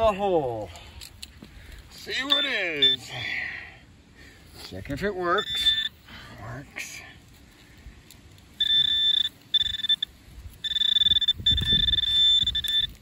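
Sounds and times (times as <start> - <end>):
metal detector beeping: 2.1 - 3.0, 5.2 - 6.0, 8.5 - 13.0.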